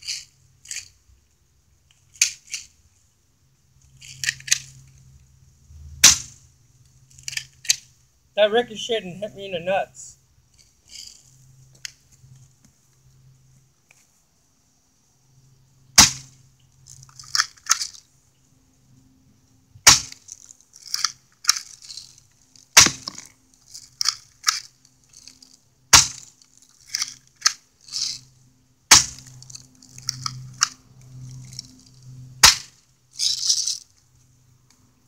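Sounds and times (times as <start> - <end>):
airsoft gun shots: 16.0 - 16.3, 19.9 - 20.1, 22.8 - 23.2, 26.0 - 26.2.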